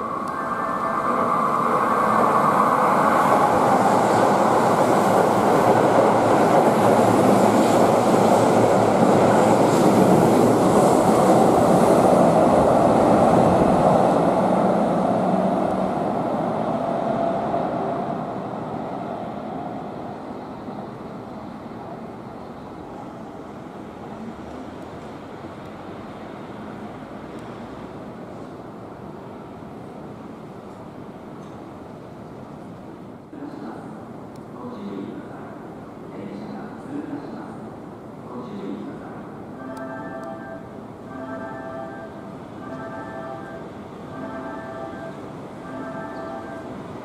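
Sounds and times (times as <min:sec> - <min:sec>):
train wheels rolling on rails: 0:00.0 - 0:33.0.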